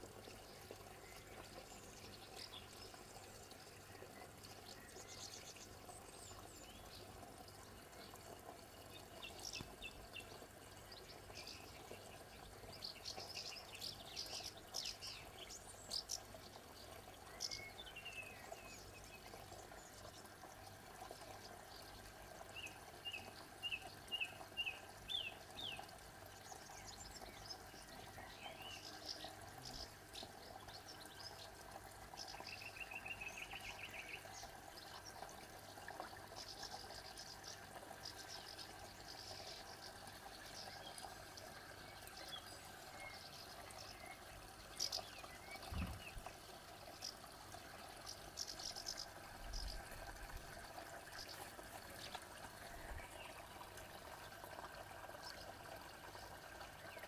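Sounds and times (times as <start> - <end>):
bird chirps: 44.8 - 46.3.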